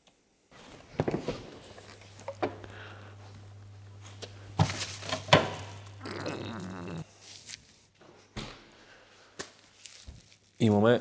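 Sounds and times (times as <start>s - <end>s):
refrigerator low hum: 0.6s - 7.1s.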